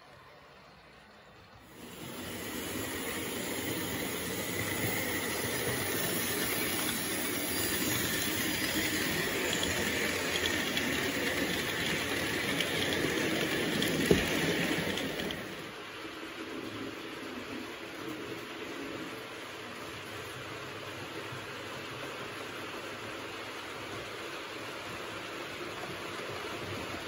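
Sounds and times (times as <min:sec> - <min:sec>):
model train wheels rattling on track: 0:01.7 - 0:15.8.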